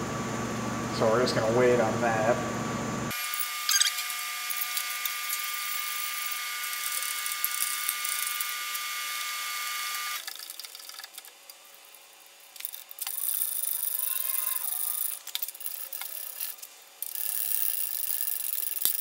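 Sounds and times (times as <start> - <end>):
power tool motor whining: 3.1 - 10.3
rapid ratchet clicking: 3.3 - 19.0.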